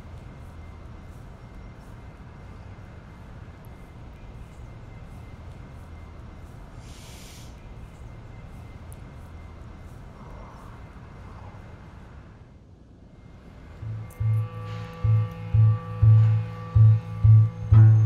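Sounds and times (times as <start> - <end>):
brief hiss: 6.8 - 7.7
low outdoor rumble: 7.5 - 18.0.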